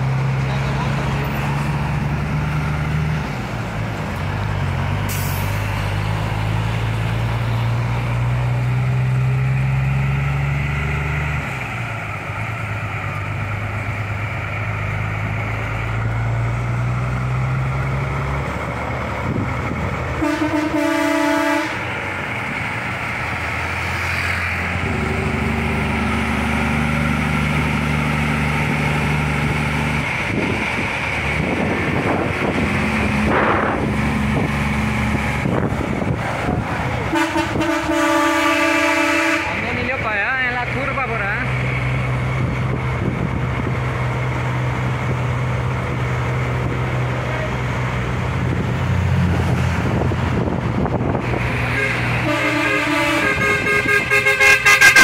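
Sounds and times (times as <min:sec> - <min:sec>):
truck diesel engines under load: 0:00.0 - 0:55.0
truck air horn: 0:20.2 - 0:21.9, 0:37.1 - 0:39.6, 0:51.6 - 0:55.0.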